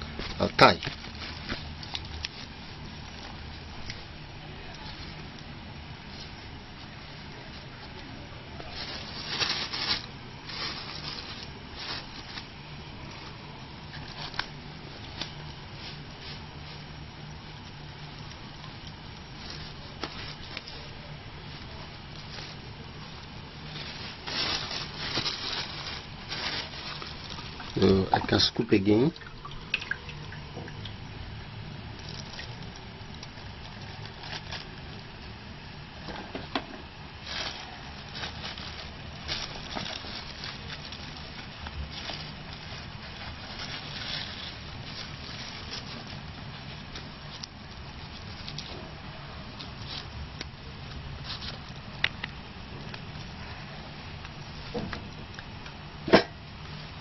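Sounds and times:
plastic bag and leaf crinkling: 0.0 - 57.0
steady low hum: 0.0 - 57.0
wet squelching: 26.3 - 31.1.

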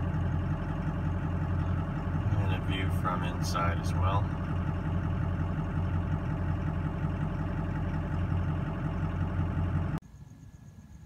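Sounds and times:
truck engine idling: 0.0 - 10.0.

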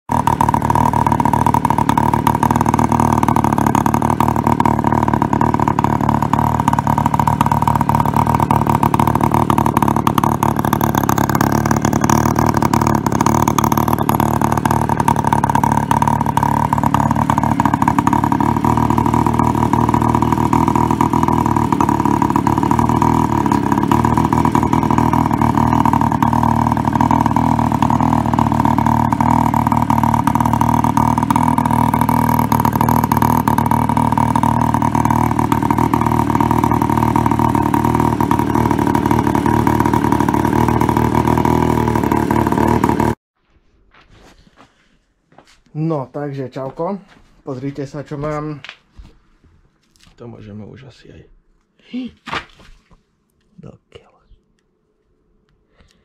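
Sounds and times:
moped engine idling: 0.0 - 43.2.

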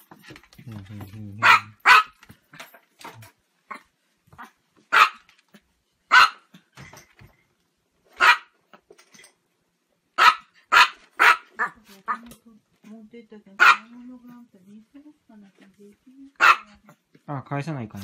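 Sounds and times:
small dog barking: 1.4 - 2.2, 4.4 - 5.3, 6.1 - 6.5, 8.2 - 8.6, 10.2 - 12.2, 13.6 - 14.0, 16.4 - 16.9.

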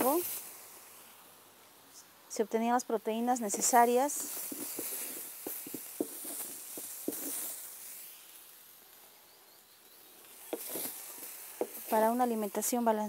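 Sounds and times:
faint hiss: 0.0 - 13.0.

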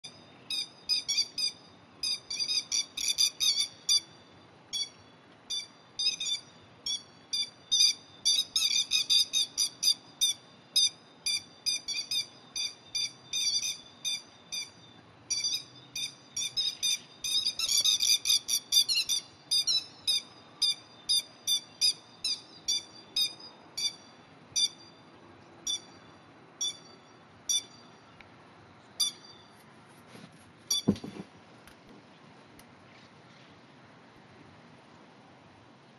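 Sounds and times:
shrill bird alarm calls: 0.0 - 25.0, 25.6 - 27.9, 29.0 - 29.5, 30.7 - 31.0.

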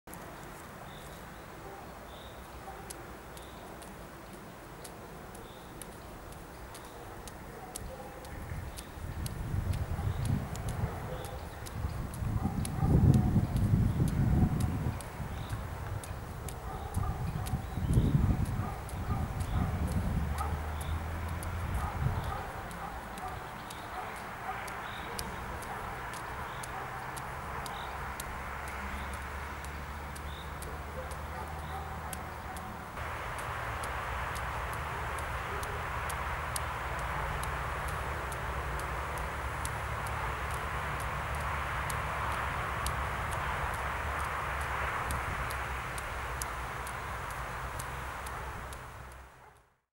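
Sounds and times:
noisy wash: 0.1 - 49.6
faint sharp clicks: 0.1 - 49.7
light ticks: 0.1 - 49.7.

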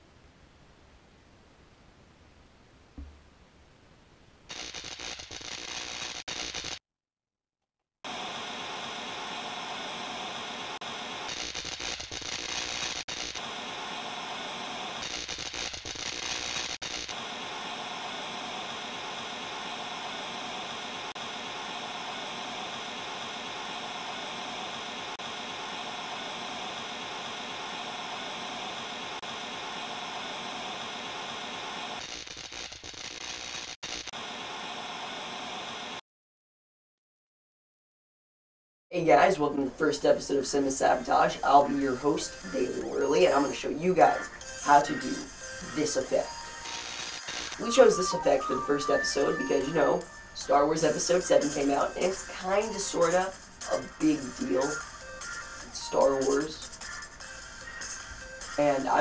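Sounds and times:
television static hiss: 8.1 - 32.1, 33.4 - 36.0, 39.0 - 59.0.

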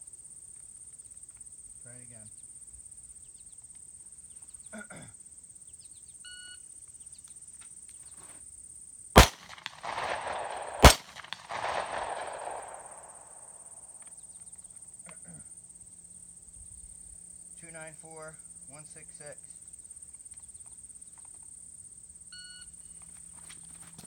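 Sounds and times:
pistol shots: 9.2 - 13.8.

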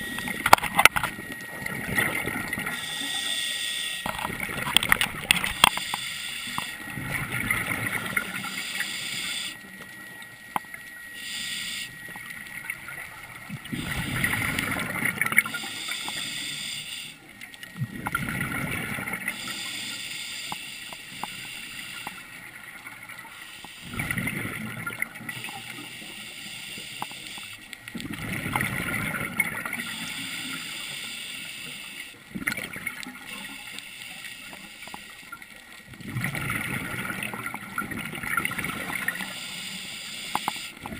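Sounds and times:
underwater bubbles gurgling: 0.0 - 40.9
small clicks: 3.0 - 6.8, 15.3 - 18.2, 19.5 - 22.2, 26.6 - 28.0, 32.5 - 35.5, 39.0 - 40.9
regulator hiss: 5.5 - 6.9, 8.2 - 9.7, 11.1 - 12.2, 15.4 - 17.3, 19.2 - 22.5, 23.2 - 24.0, 25.3 - 27.6, 29.8 - 32.2, 33.3 - 35.3, 39.0 - 40.8.

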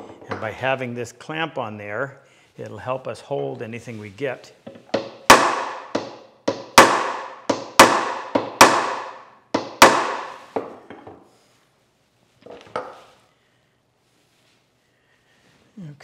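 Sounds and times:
hammer tapping wooden block: 4.7 - 10.3.

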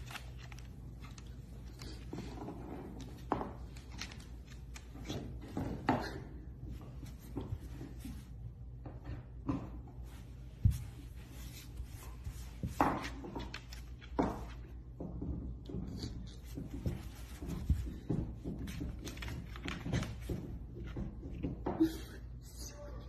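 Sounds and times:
soft rubbing: 10.0 - 13.2.

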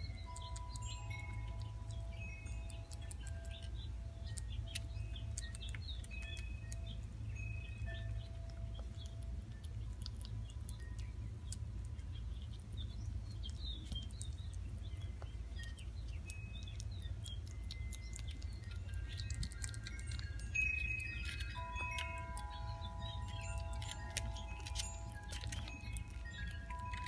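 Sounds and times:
birds chirping: 0.0 - 27.0
squirrel chewing with wet clicks: 0.0 - 27.0
steady low rumble: 0.0 - 27.0
chime tones: 0.1 - 5.4, 6.1 - 8.8, 19.8 - 27.0.

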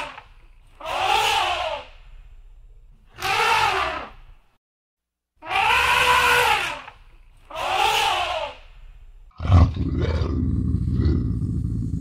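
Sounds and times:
elephant trumpeting: 3.2 - 4.2, 5.4 - 6.9.

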